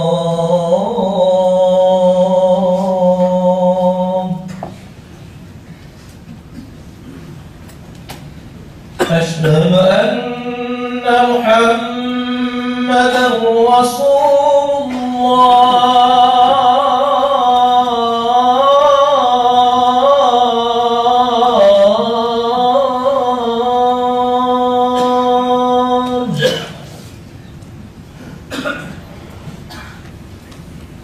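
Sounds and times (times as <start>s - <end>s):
man chanting call to prayer: 0.0s - 4.7s, 9.0s - 26.8s.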